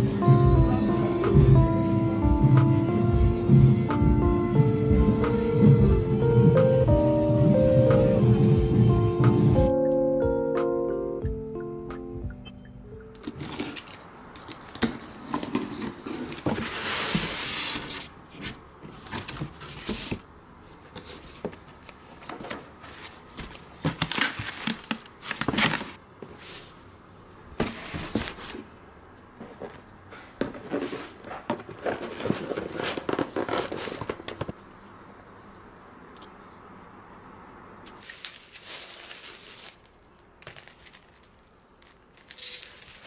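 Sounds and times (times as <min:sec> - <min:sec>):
rustling and crinkling: 0:13.1 - 0:26.9, 0:27.6 - 0:34.6, 0:37.8 - 0:43.0.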